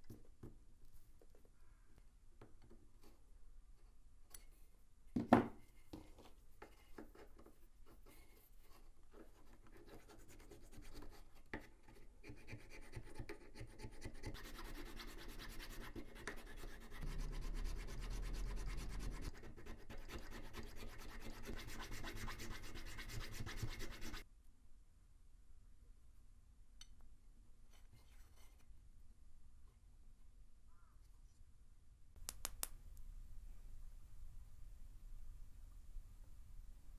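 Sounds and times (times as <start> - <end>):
needle file rasping wood: 12.2 - 24.2.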